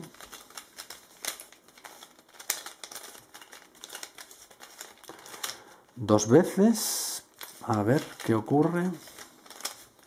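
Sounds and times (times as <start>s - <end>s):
plastic puzzle clicking and rattling: 0.0s - 5.6s.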